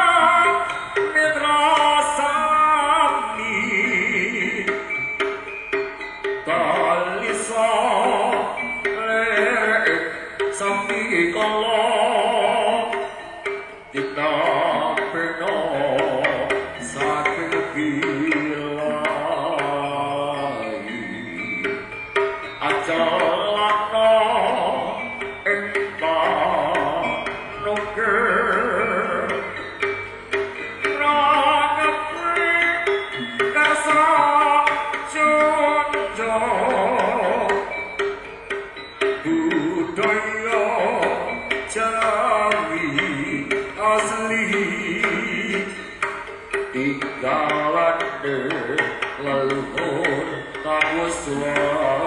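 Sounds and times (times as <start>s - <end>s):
person singing wavering melody: 0.0s - 52.0s
drum strokes: 21.3s - 52.0s.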